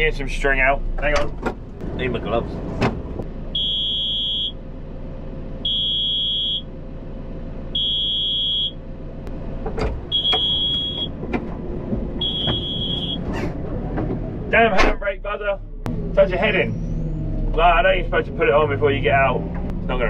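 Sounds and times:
diesel engine idling: 0:00.0 - 0:20.0
engine knocks: 0:00.6 - 0:03.3, 0:09.2 - 0:16.2, 0:18.3 - 0:20.0
warning buzzer beeping: 0:03.6 - 0:04.6, 0:05.6 - 0:06.7, 0:07.8 - 0:08.8, 0:10.1 - 0:11.1, 0:12.2 - 0:13.2.

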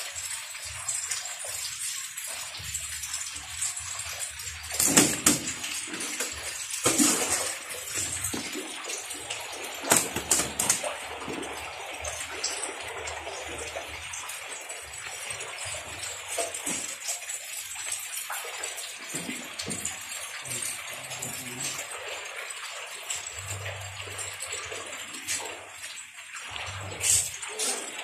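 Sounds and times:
water splashing around fish: 0:04.4 - 0:13.8.

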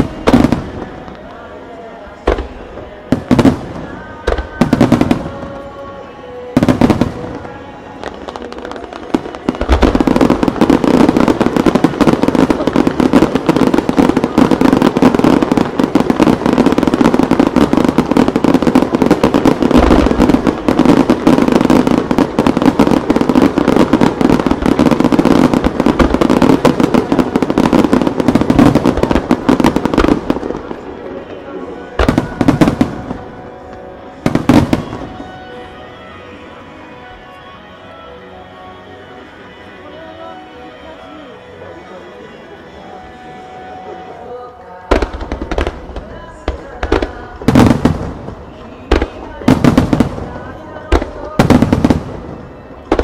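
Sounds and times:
fireworks launching and bursting: 0:00.0 - 0:35.7, 0:44.9 - 0:53.0
fireworks crackle: 0:00.0 - 0:36.2, 0:42.9 - 0:53.0
music: 0:00.0 - 0:53.0.

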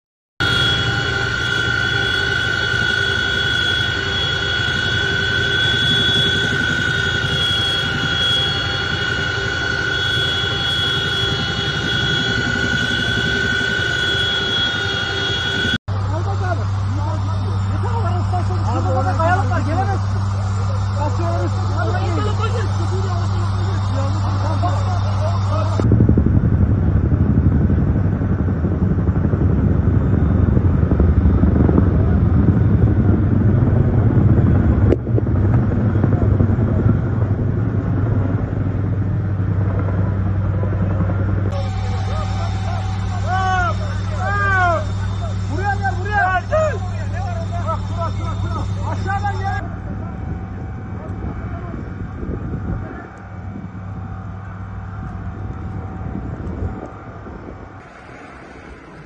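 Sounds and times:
aircraft cabin drone: 0:00.4 - 0:59.0
helicopter flying low overhead: 0:00.4 - 0:59.0
high whine: 0:00.4 - 0:59.0
rushing noise: 0:00.4 - 0:59.0.

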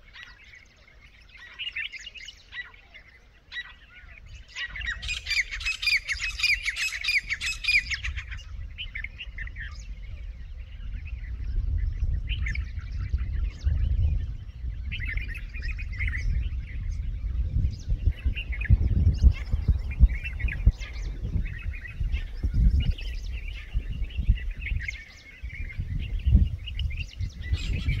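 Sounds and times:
francolins calling: 0:00.0 - 0:28.0
low rumble: 0:09.6 - 0:28.0.

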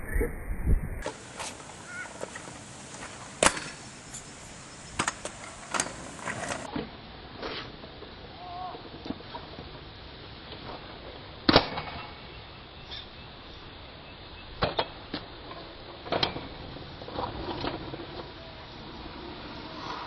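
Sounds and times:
steady background hiss: 0:00.0 - 0:20.0
kick scooter clattering on asphalt: 0:01.0 - 0:03.9, 0:05.0 - 0:06.7.

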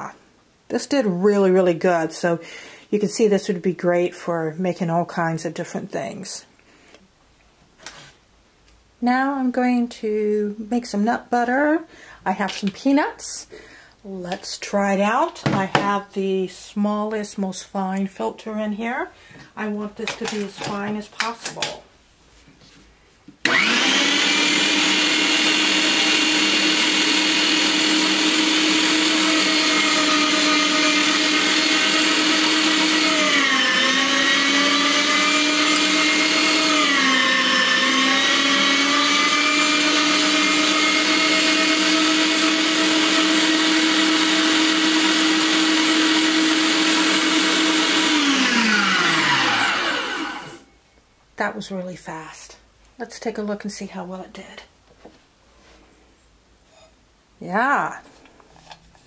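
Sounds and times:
meat grinder motor whining: 0:23.4 - 0:50.6.

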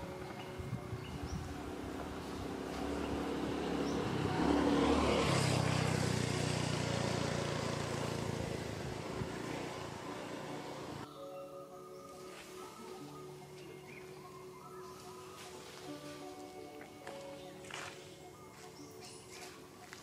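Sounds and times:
vehicle passing by: 0:00.0 - 0:11.1.

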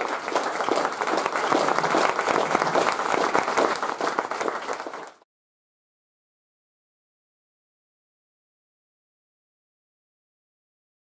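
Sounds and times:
audience applauding: 0:00.0 - 0:05.3.

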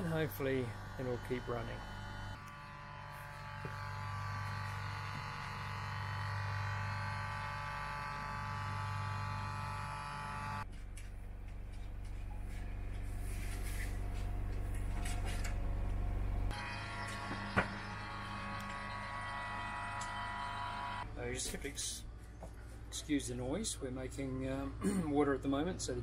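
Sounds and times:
fridge compressor humming: 0:00.0 - 0:13.0.

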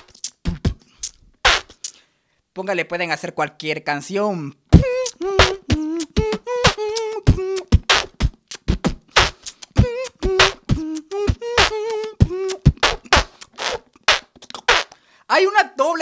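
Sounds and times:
person beatboxing: 0:00.0 - 0:02.0, 0:04.7 - 0:15.0.

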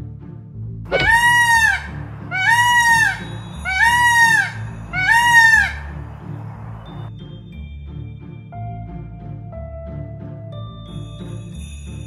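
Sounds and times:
background music with low beat: 0:00.0 - 0:12.0
peacock nasal honks: 0:00.9 - 0:07.1.

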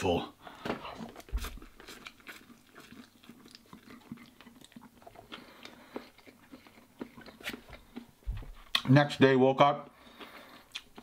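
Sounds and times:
person chewing noodles: 0:00.5 - 0:08.9, 0:09.8 - 0:11.0
wet mouth clicks: 0:10.2 - 0:11.0.

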